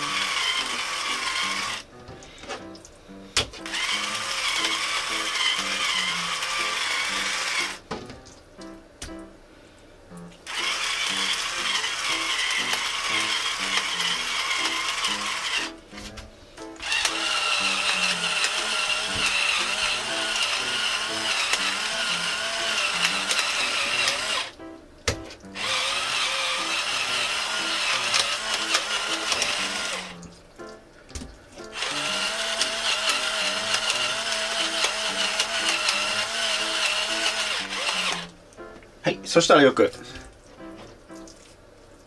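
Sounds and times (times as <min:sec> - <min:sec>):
electric pepper mill grinding: 0:00.0 - 0:02.0, 0:03.5 - 0:07.9, 0:10.5 - 0:24.6, 0:25.4 - 0:30.2, 0:31.7 - 0:38.3.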